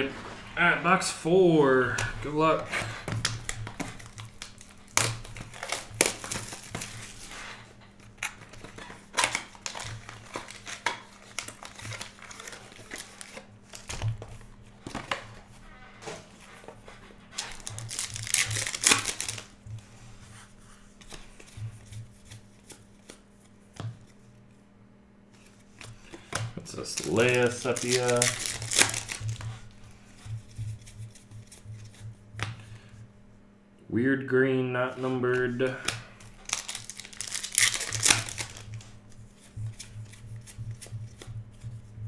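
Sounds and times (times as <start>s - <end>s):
cardboard and wrappers clicking: 2.8s - 15.4s, 16.0s - 19.6s, 25.4s - 29.7s, 35.8s - 38.9s
foil crinkling and tearing: 3.2s - 14.0s, 17.4s - 19.5s, 26.7s - 29.4s, 35.8s - 38.8s.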